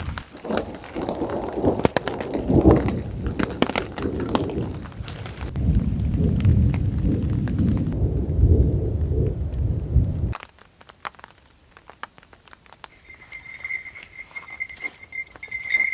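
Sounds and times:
rain tapping on a tarp: 0:00.0 - 0:08.0, 0:10.3 - 0:13.8
low rumble of thunder: 0:00.0 - 0:10.4.

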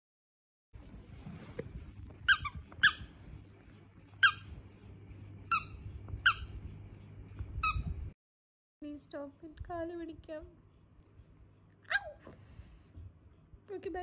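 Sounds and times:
steady low hum: 0:00.8 - 0:08.2, 0:08.8 - 0:14.0
squeaky toy squeaking: 0:02.3 - 0:03.1, 0:04.2 - 0:04.5.

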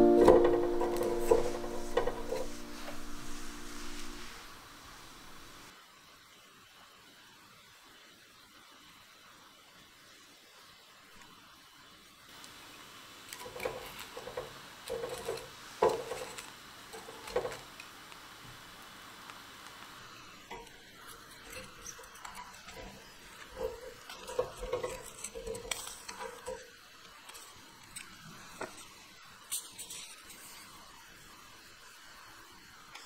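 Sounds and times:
rice cake hissing on a grill: 0:01.4 - 0:33.0
small crackles and pops: 0:12.3 - 0:32.0.

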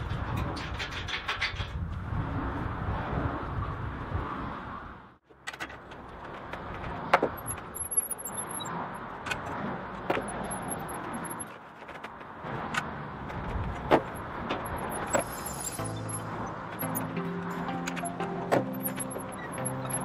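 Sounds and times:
sharp metallic clinks: 0:07.4 - 0:08.7, 0:10.2 - 0:11.5, 0:14.1 - 0:17.2.

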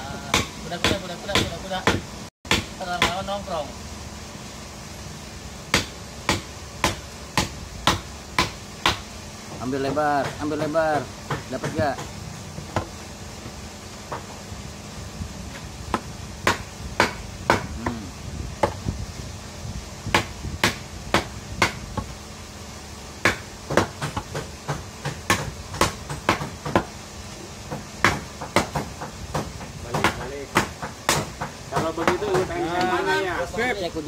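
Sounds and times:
knife chopping into wood: 0:00.3 - 0:03.3, 0:05.7 - 0:09.0, 0:09.8 - 0:12.9, 0:15.5 - 0:18.0, 0:18.6 - 0:18.8, 0:20.1 - 0:22.1, 0:23.2 - 0:26.9, 0:27.7 - 0:32.5.

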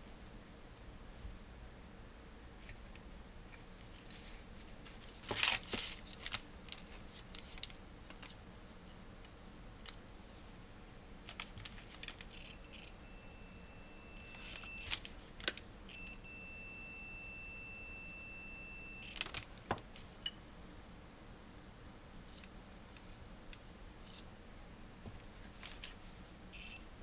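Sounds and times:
rustling of paper and wires: 0:03.5 - 0:08.8, 0:11.2 - 0:12.9, 0:25.4 - 0:26.2
steady high-pitched electronic beep: 0:12.4 - 0:15.0, 0:15.9 - 0:19.2.

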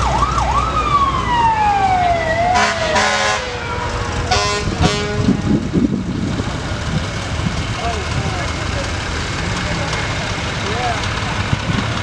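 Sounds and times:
fire truck siren: 0:00.0 - 0:06.1
truck horn blasts: 0:02.5 - 0:05.6.

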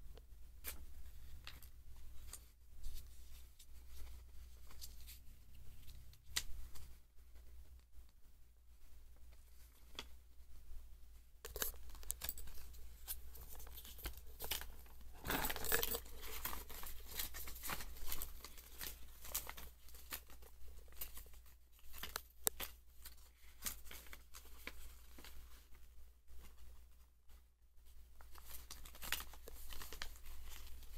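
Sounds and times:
paper and packaging rustling: 0:11.5 - 0:25.8, 0:28.2 - 0:30.9.

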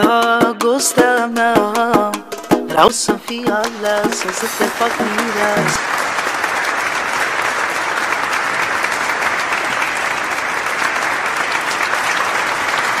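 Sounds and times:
dense applause: 0:03.2 - 0:13.0.

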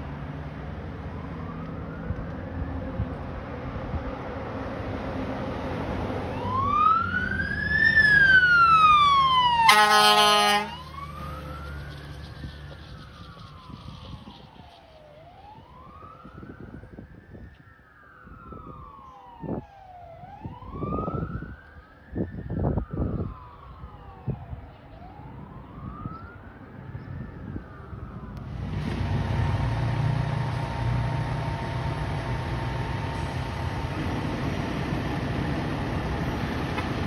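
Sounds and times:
fire engine siren wailing: 0:00.0 - 0:37.0
engine rumble and hiss: 0:10.7 - 0:15.2, 0:28.4 - 0:37.0.

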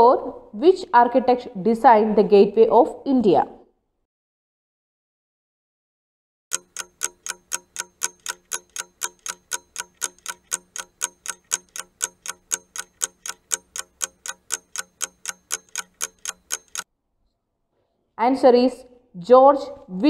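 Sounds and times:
clock ticking: 0:06.5 - 0:16.9.

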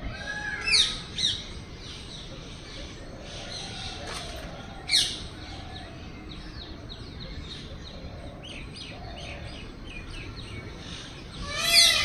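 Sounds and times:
small birds chirping: 0:00.0 - 0:12.0
sharp descending bird calls: 0:11.4 - 0:12.0.

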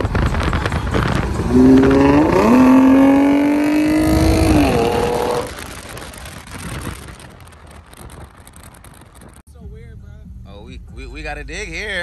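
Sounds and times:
car engine revving high: 0:00.2 - 0:05.6.

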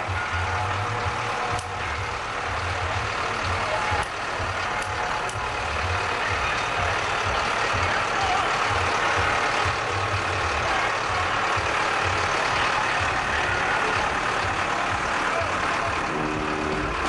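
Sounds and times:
street noise: 0:00.0 - 0:17.0
tractor engine rumbling: 0:00.0 - 0:17.0.

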